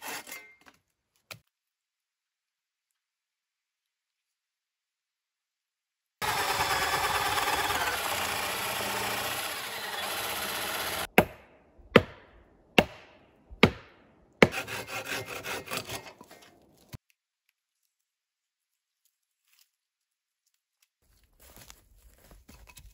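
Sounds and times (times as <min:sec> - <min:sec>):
bow saw cutting wood: 0:00.0 - 0:00.3, 0:06.2 - 0:11.2, 0:14.4 - 0:17.0
cordless drill boring into log: 0:06.2 - 0:11.1.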